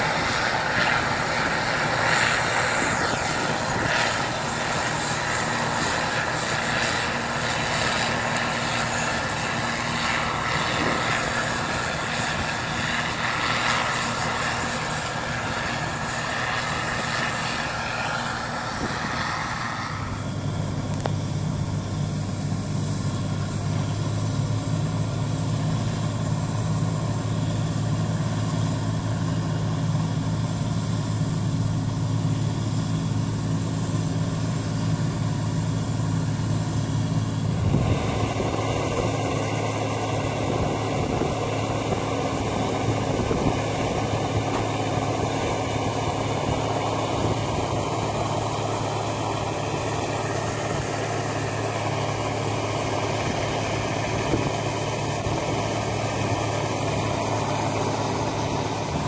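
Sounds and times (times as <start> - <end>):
combine engine hum: 0.0 - 59.0
grain pouring hiss: 34.1 - 59.0.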